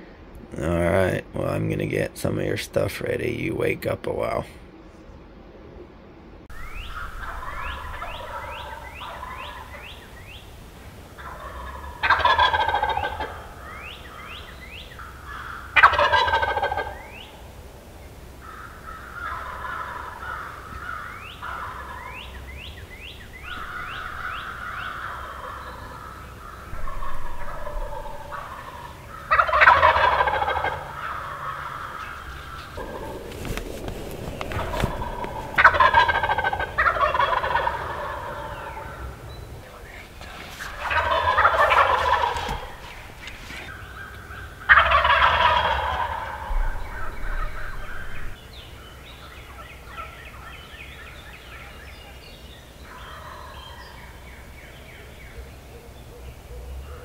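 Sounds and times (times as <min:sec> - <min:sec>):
turkey gobbling: 0:06.5 - 0:52.2, 0:52.8 - 0:54.3
birds calling short notes: 0:30.6 - 0:44.7.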